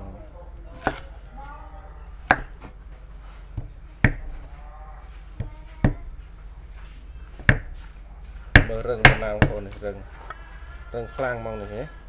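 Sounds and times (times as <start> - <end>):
cleaver chopping nuts on board: 0.8 - 1.1, 2.2 - 2.8, 3.6 - 4.5, 7.4 - 7.8, 8.5 - 9.8.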